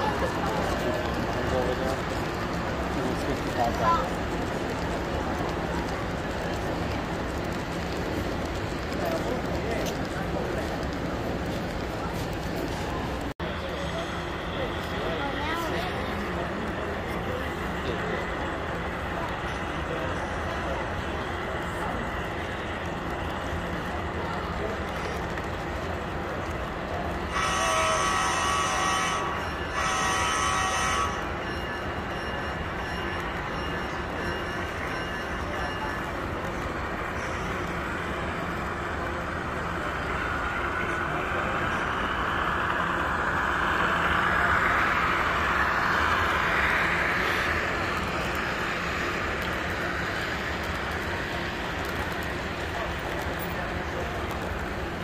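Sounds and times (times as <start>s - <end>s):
model train rolling hum: 0.0s - 55.0s
model locomotive horn blasts: 27.3s - 31.4s.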